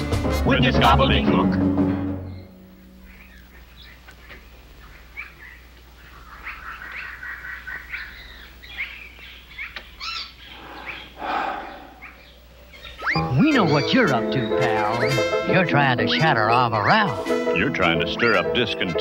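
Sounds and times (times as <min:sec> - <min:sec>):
bird chirps and whistling calls: 0:02.2 - 0:15.4.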